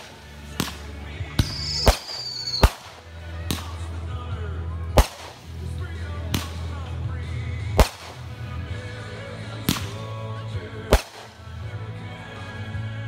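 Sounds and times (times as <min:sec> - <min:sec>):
fireworks bangs: 0:00.0 - 0:03.8, 0:05.0 - 0:05.4, 0:07.8 - 0:08.3, 0:10.9 - 0:11.4.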